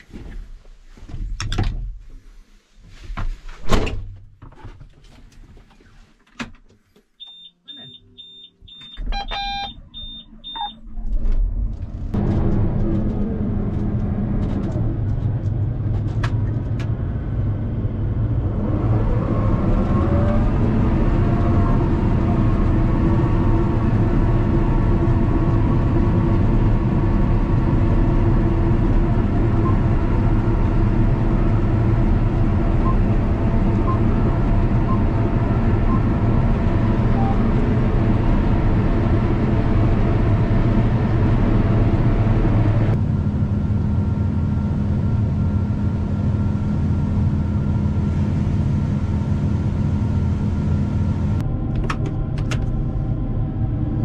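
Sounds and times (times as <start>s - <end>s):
combine harvester engine drone: 7.2s - 54.0s
rising machine whine: 18.4s - 43.0s.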